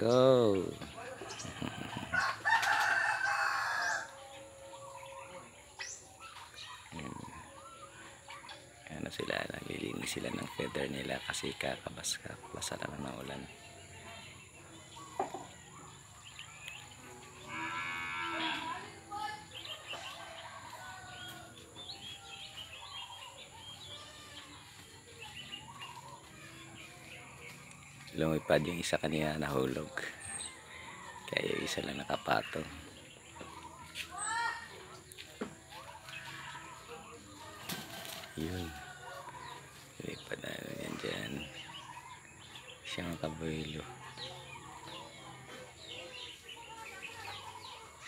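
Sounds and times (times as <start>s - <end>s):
birds chirping: 0.0s - 48.0s
rooster crowing: 1.3s - 5.1s.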